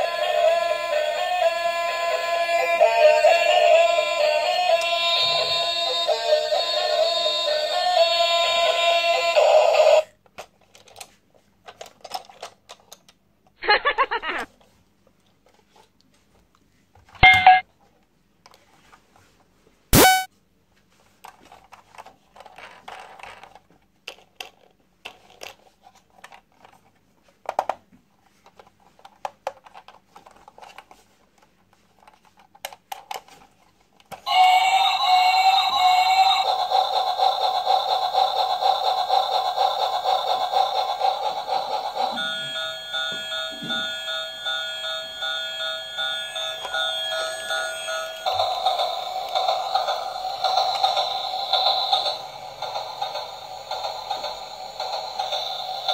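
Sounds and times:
loud electronic toy tune: 20.0s - 20.3s
toy electronic chimes: 20.0s - 20.3s, 42.1s - 55.9s.

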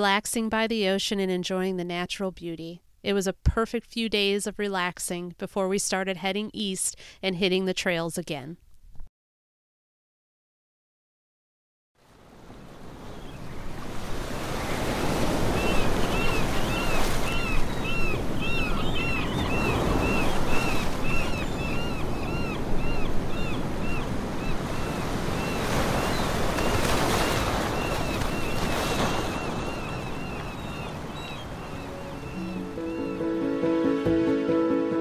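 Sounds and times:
surf breaking over rocks: 25.1s - 30.1s.

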